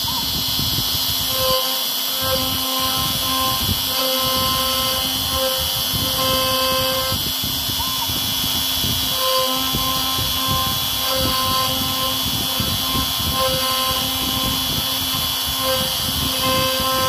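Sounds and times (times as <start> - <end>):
cnc spindle whining: 0.0 - 17.0.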